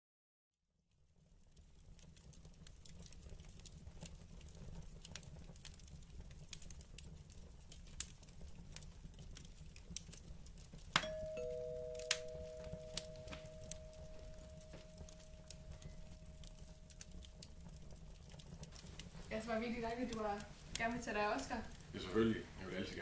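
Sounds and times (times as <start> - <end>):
wood fire crackling: 0.9 - 23.0
two-note doorbell chime: 11.0 - 16.1.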